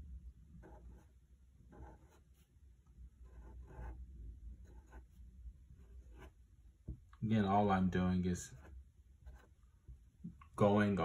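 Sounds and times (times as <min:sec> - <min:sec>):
marker drawing on linoleum: 0:00.6 - 0:02.6, 0:03.2 - 0:04.0, 0:04.6 - 0:06.4, 0:08.4 - 0:09.6.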